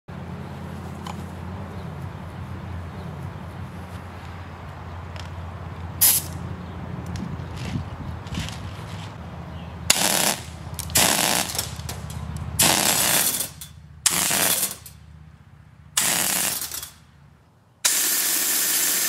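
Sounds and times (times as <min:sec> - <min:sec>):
air gun bursts: 0:06.0 - 0:06.4, 0:09.9 - 0:11.9, 0:12.6 - 0:15.0, 0:16.0 - 0:17.0, 0:17.8 - 0:19.0.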